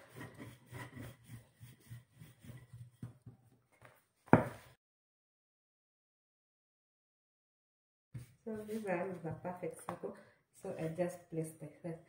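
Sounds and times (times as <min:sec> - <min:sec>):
rolling pin rolling dough: 0:00.0 - 0:03.5.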